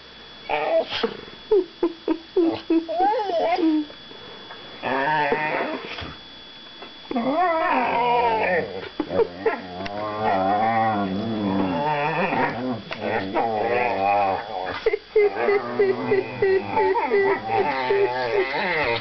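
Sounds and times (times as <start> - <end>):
dogs growling playfully: 4.8 - 6.2, 7.1 - 19.0.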